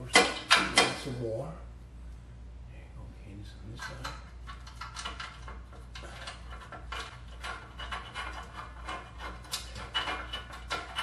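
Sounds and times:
steady low hum: 0.0 - 11.0
metal clinks and scraping: 3.9 - 11.0.

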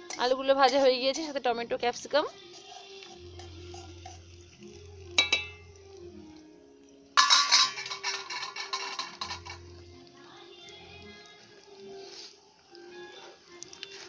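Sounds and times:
food sizzling in hot oil: 0.0 - 6.4, 7.0 - 14.0
metal clink: 5.2 - 5.6, 7.2 - 9.6.

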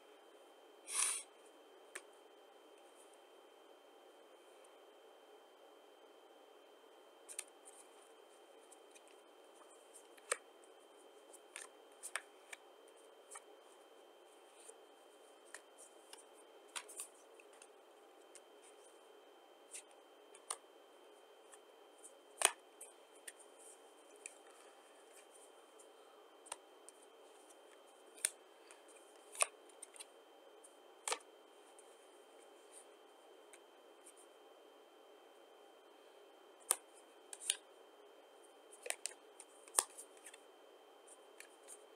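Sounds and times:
playing cards snapping and flicking: 0.9 - 1.2.

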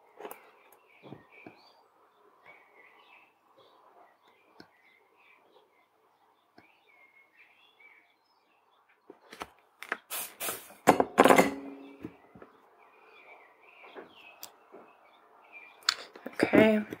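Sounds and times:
faint bird chirps: 0.0 - 9.1, 11.6 - 16.8
objects clicking and knocking on surface: 10.8 - 12.5.

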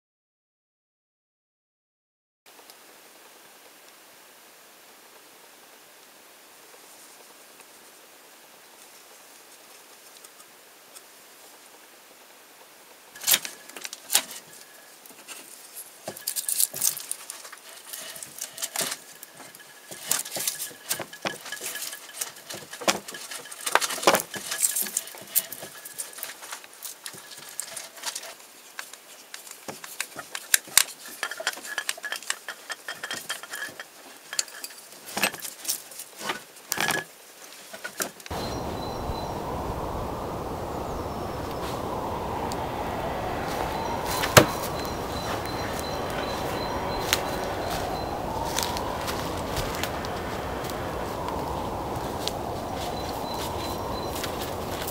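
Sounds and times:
outdoor rushing noise: 38.3 - 54.9.

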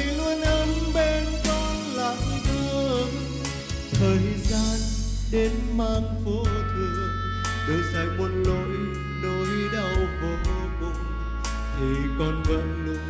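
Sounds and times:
backing track with bass and beat: 0.0 - 13.0
man singing into microphone: 0.0 - 13.0.

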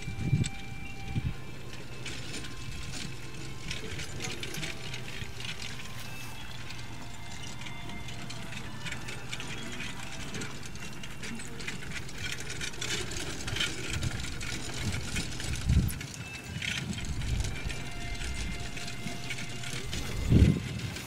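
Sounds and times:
carriage wheels and harness rattling: 0.0 - 21.0.

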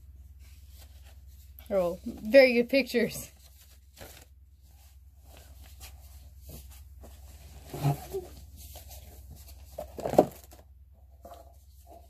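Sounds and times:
paper leaflet rustling: 0.4 - 7.2.

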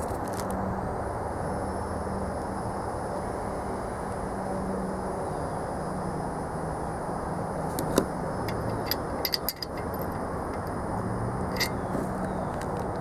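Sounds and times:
steady background hum: 0.0 - 13.0
light metallic clicks: 7.7 - 10.8, 11.5 - 13.0.

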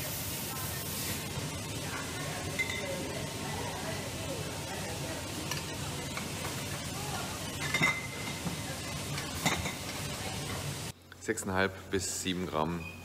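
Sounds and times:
bottling machinery hissing: 0.0 - 10.9
glass bottles clinking: 2.6 - 3.0, 7.5 - 10.0.

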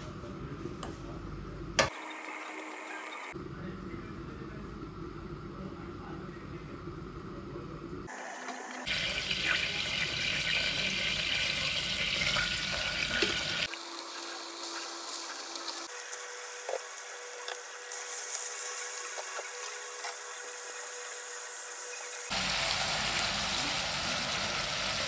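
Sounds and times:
hot oil sizzling and spitting: 8.1 - 25.0.

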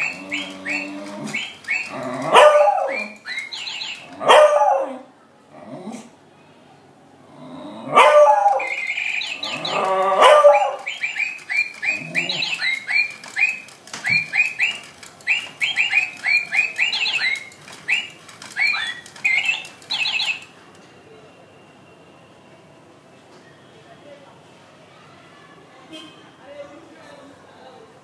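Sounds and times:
toy electronic chirps and tweets: 0.0 - 4.2, 8.4 - 20.6
dog barking: 2.0 - 3.2, 4.2 - 5.1, 7.9 - 8.8, 9.7 - 10.9.

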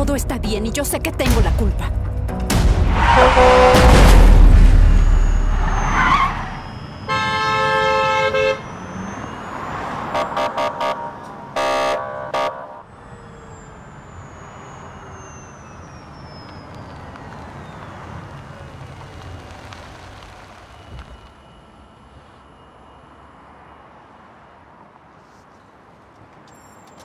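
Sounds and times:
street hum: 0.0 - 27.0
car horns honking: 2.9 - 4.0, 5.2 - 12.9.

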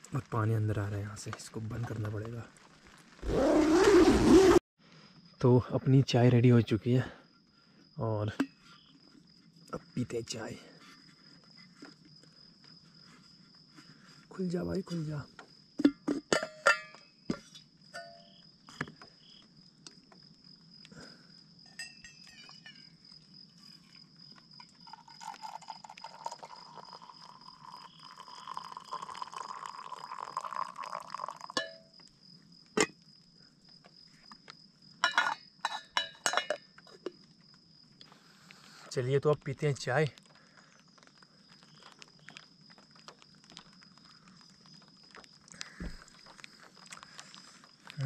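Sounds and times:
metal lid and mug clinking: 15.8 - 18.3, 28.5 - 31.9, 35.0 - 36.7
tea pouring into mug: 24.6 - 31.8.

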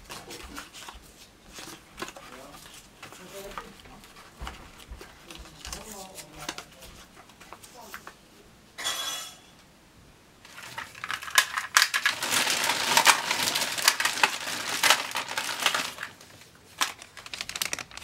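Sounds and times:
cassette tapes clattering: 10.5 - 18.0.

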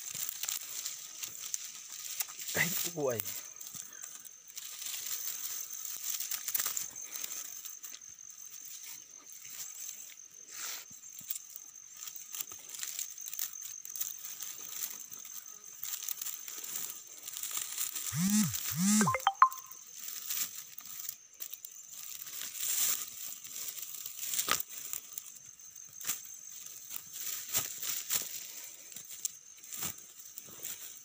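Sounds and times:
rope crackling and rustling: 0.0 - 8.0, 21.9 - 25.4.

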